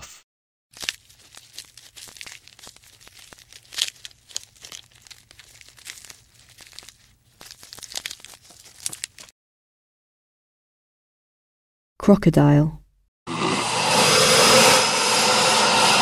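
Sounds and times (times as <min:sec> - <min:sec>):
crackling and crunching: 0:00.7 - 0:09.3.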